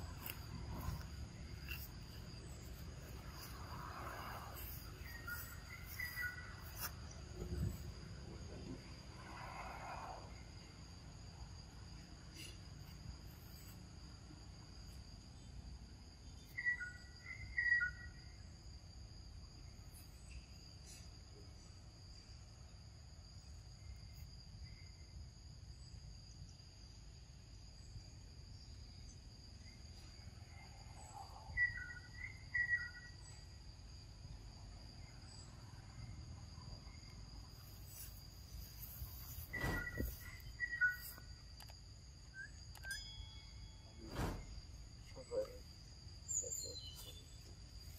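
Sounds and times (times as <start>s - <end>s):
insects buzzing: 0.0s - 47.9s.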